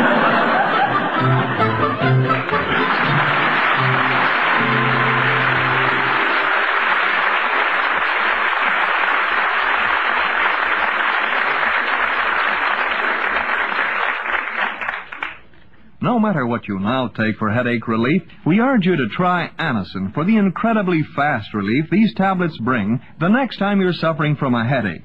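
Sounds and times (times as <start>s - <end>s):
studio audience applauding: 0.0s - 15.4s
sustained music chords: 1.0s - 6.9s.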